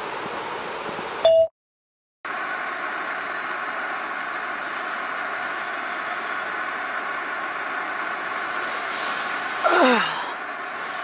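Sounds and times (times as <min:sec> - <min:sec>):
steady hiss: 0:02.3 - 0:11.0.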